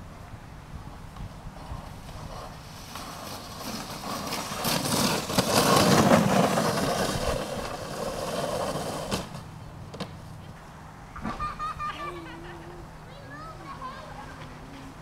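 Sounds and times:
sled scraping over snow: 0:01.4 - 0:09.5.

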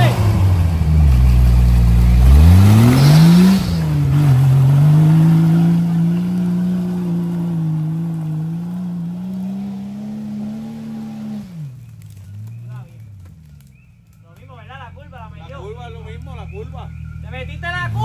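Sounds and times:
engine revving: 0:00.0 - 0:18.0
tyres spinning in mud: 0:01.1 - 0:14.5.

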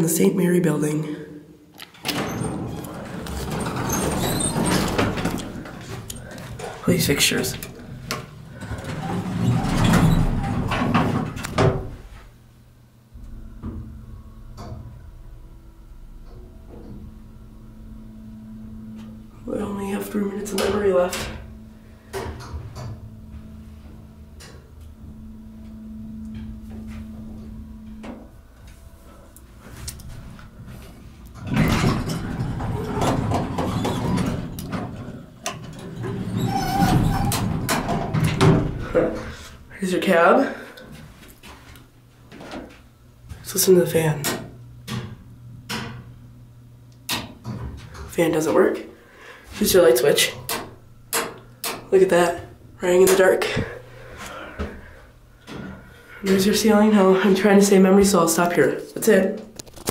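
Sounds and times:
elevator low hum: 0:01.4 - 0:59.9
elevator doors sliding shut: 0:01.9 - 0:12.3, 0:13.1 - 0:39.7.

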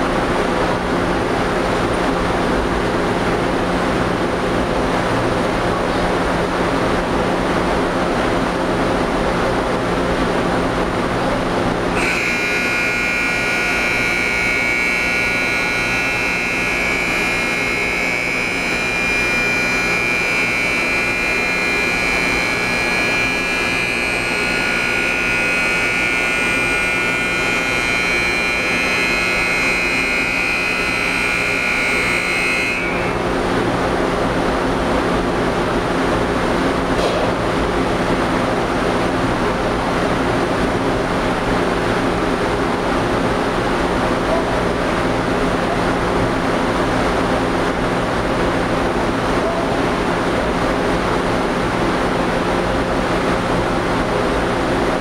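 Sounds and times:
high steady tone: 0:12.0 - 0:33.4.

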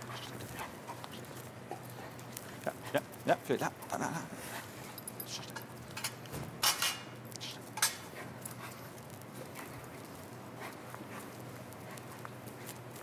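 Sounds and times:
light metallic clinks and knocks: 0:04.8 - 0:09.2.

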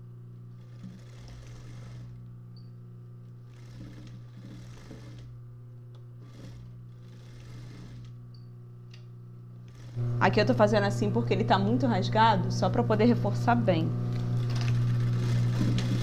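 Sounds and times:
sewing machine motor humming: 0:00.0 - 0:16.0
sewing machine stitching: 0:00.5 - 0:02.3, 0:03.3 - 0:05.4, 0:06.2 - 0:08.2, 0:09.6 - 0:10.0, 0:14.1 - 0:16.0.

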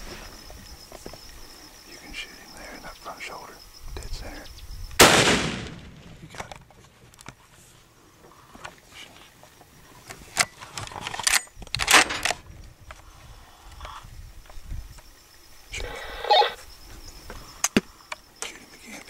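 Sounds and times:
rifle shot echo: 0:05.0 - 0:06.2.

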